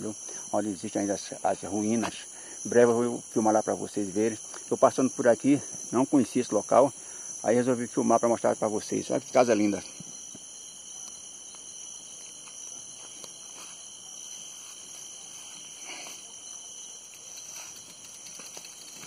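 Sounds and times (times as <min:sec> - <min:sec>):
insect chorus shrilling: 0:00.0 - 0:19.0
soft rustle: 0:12.2 - 0:19.0
faint ticks: 0:16.0 - 0:19.0.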